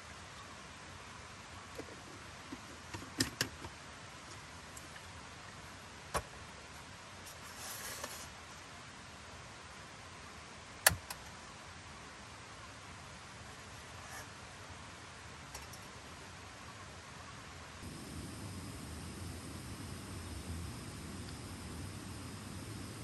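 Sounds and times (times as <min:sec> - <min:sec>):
background hiss: 0:00.0 - 0:23.0
soft rustle: 0:06.7 - 0:08.6, 0:13.3 - 0:14.6
small clicks and knocks: 0:15.5 - 0:16.0.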